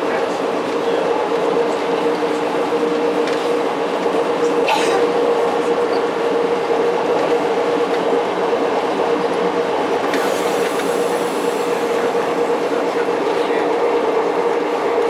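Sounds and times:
rail motor engine drone: 0.0s - 15.0s.

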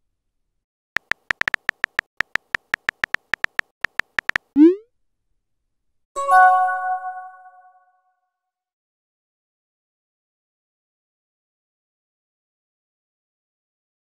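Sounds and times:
keyboard tap clicks: 1.0s - 4.6s.

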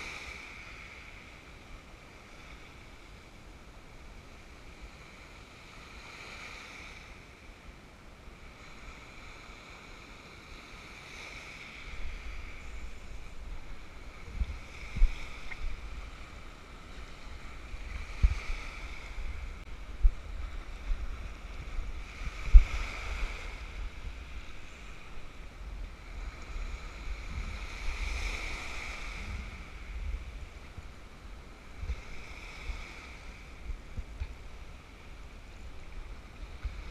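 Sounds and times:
waves washing over rocks: 8.4s - 36.9s
wind buffeting microphone: 11.7s - 36.9s.

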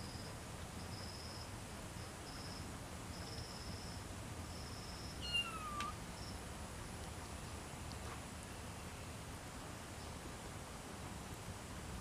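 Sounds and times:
insect chirping: 0.0s - 7.0s
kitten meowing: 5.2s - 6.0s.

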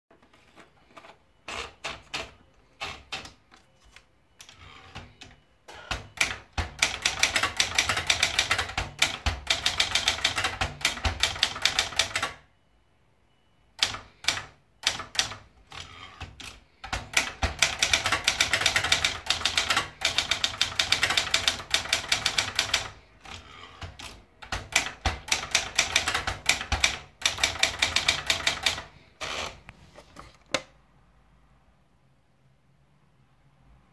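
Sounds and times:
typewriter typing: 0.3s - 12.5s, 13.8s - 30.7s.

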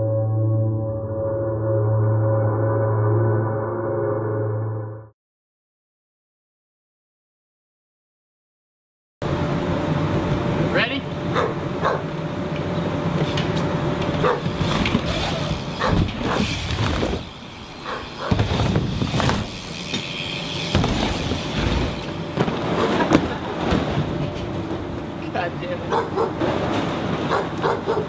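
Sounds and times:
bike tyres rolling on ramp: 13.0s - 25.4s, 26.2s - 28.0s
bike knocks and clatter: 13.2s - 25.0s.

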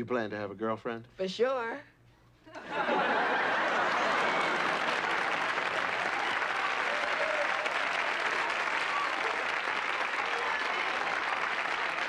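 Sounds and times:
studio audience applauding: 2.9s - 12.0s.

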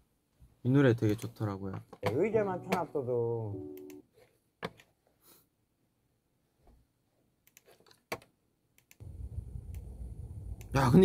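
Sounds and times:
keyboard and mouse clicks: 7.4s - 9.0s.

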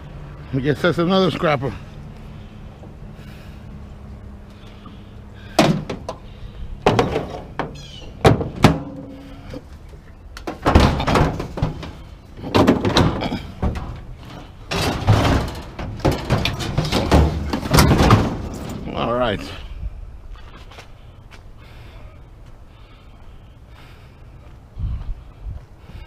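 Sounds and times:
metal clattering and scraping: 4.6s - 19.6s
hollow metal knocks: 5.5s - 6.2s, 6.8s - 9.5s, 10.4s - 18.8s.

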